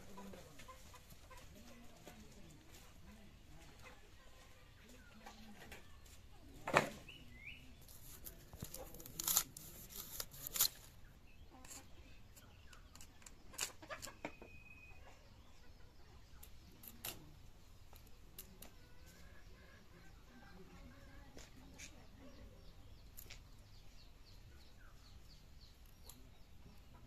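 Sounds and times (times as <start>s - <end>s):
knife cutting cauliflower: 7.9s - 10.9s.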